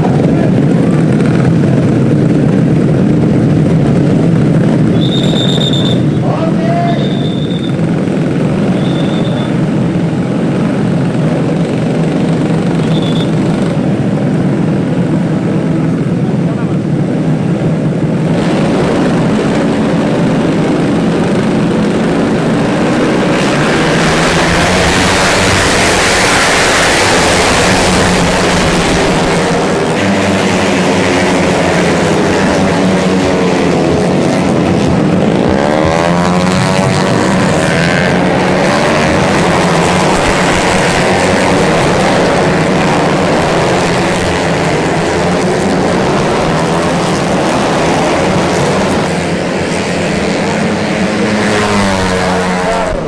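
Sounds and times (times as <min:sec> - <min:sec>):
racing motorcycle engines: 0:00.0 - 0:53.0
motorcycle passing by: 0:18.3 - 0:53.0.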